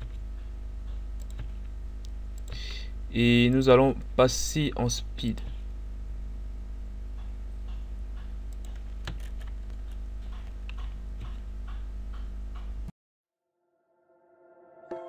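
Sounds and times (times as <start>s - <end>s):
low electrical hum: 0.0s - 12.9s
computer mouse and keyboard clicks: 0.9s - 1.6s, 7.6s - 11.4s.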